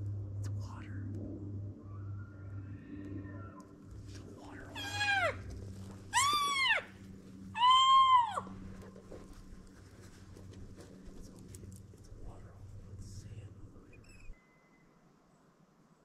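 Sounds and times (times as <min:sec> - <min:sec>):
elk mewing: 0:04.2 - 0:11.7.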